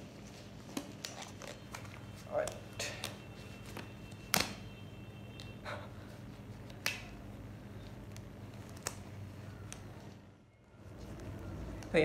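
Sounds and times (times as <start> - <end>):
low room hum: 0.0 - 12.0
rubber gloves snapping: 0.7 - 4.6, 6.6 - 7.2, 7.8 - 9.9.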